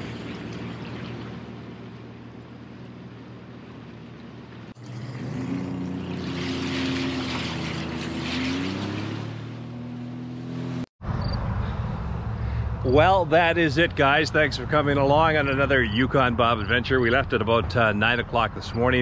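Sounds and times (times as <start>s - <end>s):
watercraft engine: 0.0s - 10.9s, 11.6s - 19.0s.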